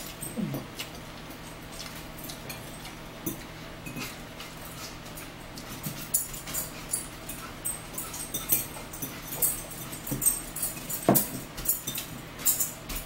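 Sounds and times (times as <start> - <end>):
chewing and lip smacks: 0.0 - 5.7
forks clinking in bowls: 0.0 - 13.0.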